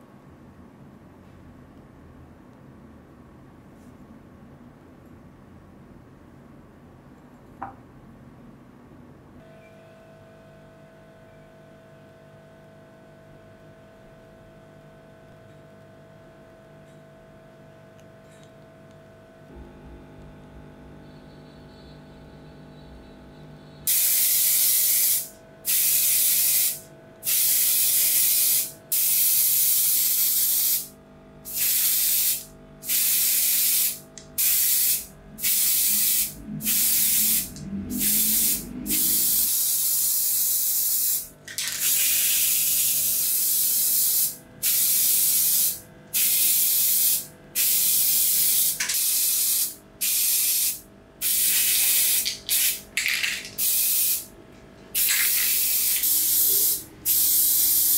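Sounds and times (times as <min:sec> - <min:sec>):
spray paint hissing bursts: 0:23.9 - 0:30.9, 0:31.5 - 0:54.3, 0:55.0 - 0:57.9.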